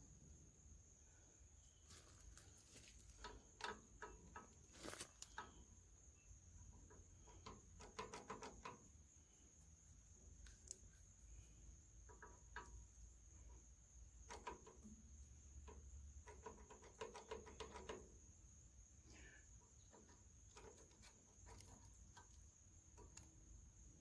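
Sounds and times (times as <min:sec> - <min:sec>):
clicks and taps of metal parts: 0:03.1 - 0:05.8, 0:06.6 - 0:09.0, 0:12.0 - 0:18.2, 0:19.6 - 0:23.5.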